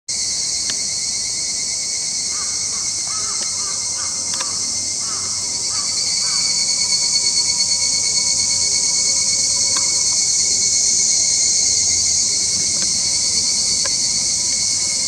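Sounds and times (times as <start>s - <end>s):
insects droning: 0.1s - 15.0s
faint clicks: 4.3s - 4.6s.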